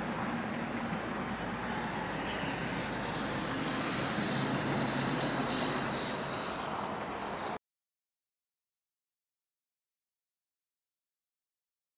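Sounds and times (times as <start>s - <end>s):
distant road traffic: 0.0s - 7.6s
faint high whine: 0.0s - 7.6s.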